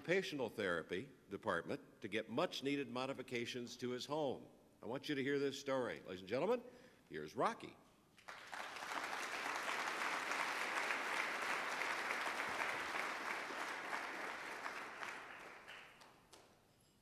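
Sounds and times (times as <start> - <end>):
audience applauding: 8.2 - 16.4.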